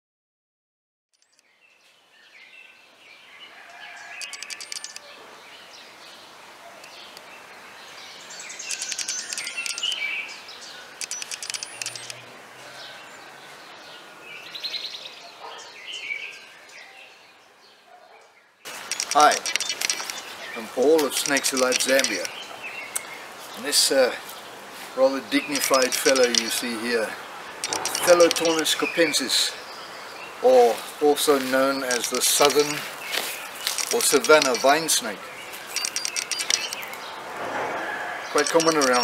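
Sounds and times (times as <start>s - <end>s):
birds chirping and calling: 2.2s - 39.0s
rapid high-pitched bird trilling: 4.0s - 5.1s, 8.5s - 10.2s, 11.0s - 12.2s, 18.8s - 20.6s, 27.6s - 29.1s, 31.8s - 37.0s, 38.3s - 39.0s
steady hiss: 18.7s - 37.7s.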